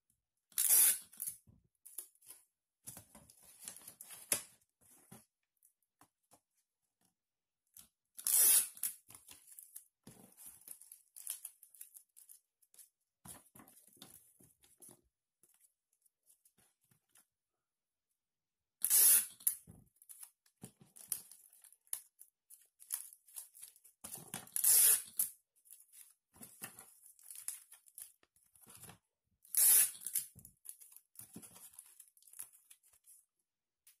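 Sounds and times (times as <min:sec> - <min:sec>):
sticky tape pulled and torn: 0:00.6 - 0:01.3, 0:08.2 - 0:09.0, 0:18.8 - 0:19.6, 0:24.5 - 0:25.3, 0:29.5 - 0:30.3.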